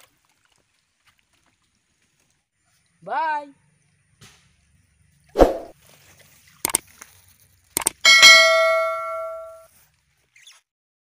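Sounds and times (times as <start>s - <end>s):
mouse clicks: 7.8s - 8.0s
notification ding: 8.1s - 9.6s.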